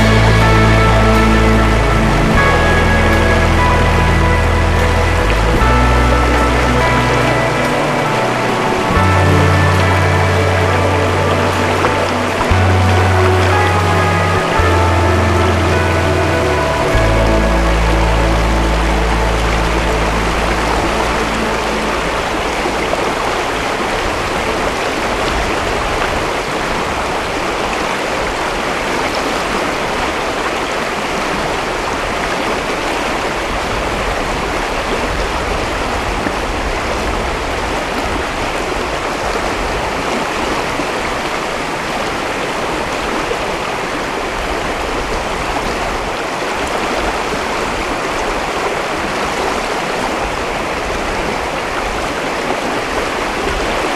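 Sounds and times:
background music: 0.0 - 25.2
river rapids rushing: 0.0 - 53.9.

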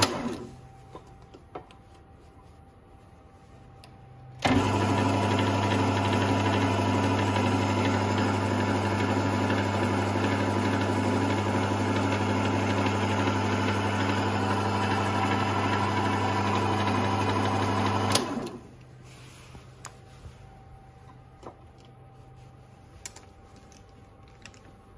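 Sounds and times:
lathe motor humming with whine: 4.4 - 18.6.

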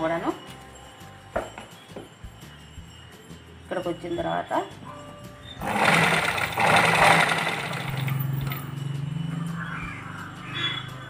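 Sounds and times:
sewing machine stitching: 5.6 - 8.6.

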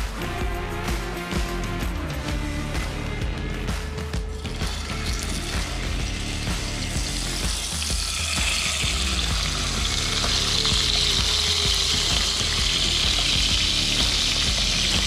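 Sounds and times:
fish sizzling in hot oil: 4.6 - 15.0.

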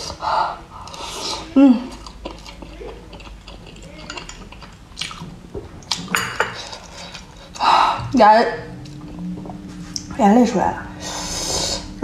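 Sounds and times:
utensils clinking against glass bowl: 3.6 - 4.8, 6.1 - 7.2.

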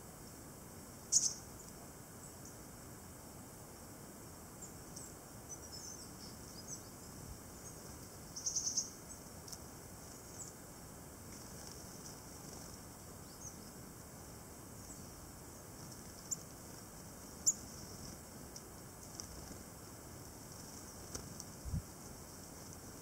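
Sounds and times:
tits calling: 1.0 - 2.7, 4.6 - 9.3, 11.3 - 13.8, 14.8 - 18.1.

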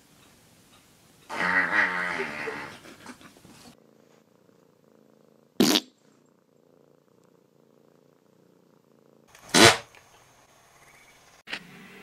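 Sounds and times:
cat purring: 1.2 - 9.3.

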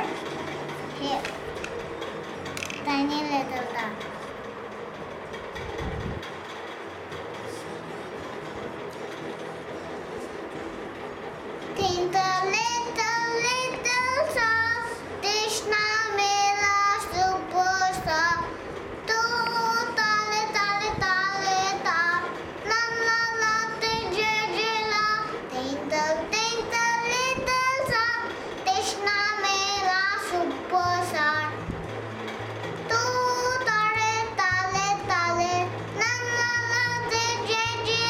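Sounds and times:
young child singing: 11.7 - 31.6, 32.9 - 38.0.

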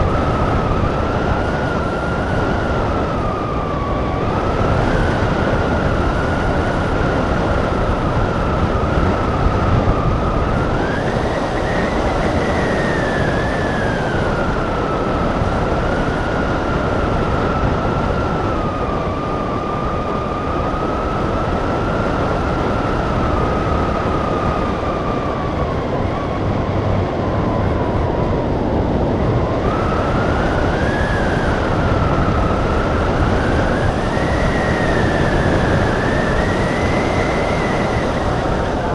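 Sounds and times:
wind rushing: 0.0 - 38.9.

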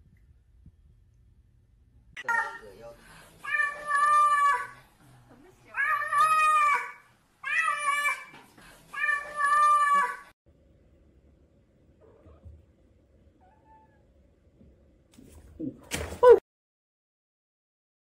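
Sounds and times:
cat yowling: 3.5 - 4.7, 5.8 - 8.3.

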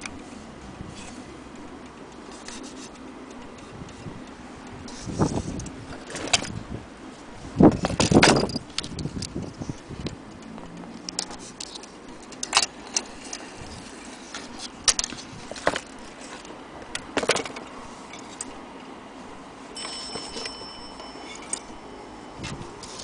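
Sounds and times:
clock parts clicking and knocking: 7.8 - 9.4, 10.0 - 13.4
metallic ringing tone: 19.8 - 23.0.

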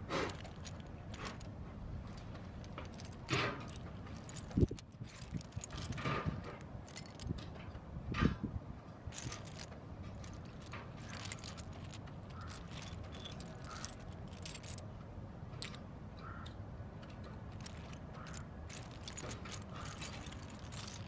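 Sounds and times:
toy train clicks and rattles: 0.1 - 1.5, 2.1 - 7.5, 9.1 - 14.8, 17.0 - 21.0.

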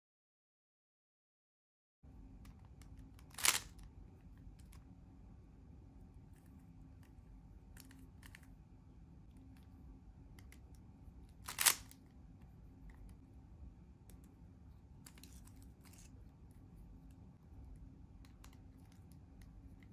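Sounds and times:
sharp cube clacks: 2.8 - 3.9, 11.3 - 12.0
speed cube layers clicking: 3.2 - 3.8, 11.4 - 12.0.

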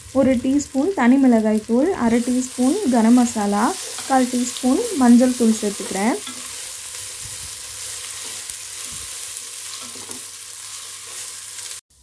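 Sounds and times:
masala sizzling in hot oil: 0.0 - 12.0
wooden spatula scraping: 5.3 - 11.4.

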